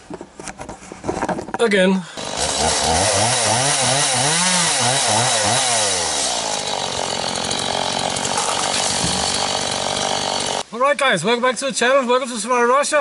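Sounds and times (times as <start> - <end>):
chainsaw engine revving: 2.2 - 10.6.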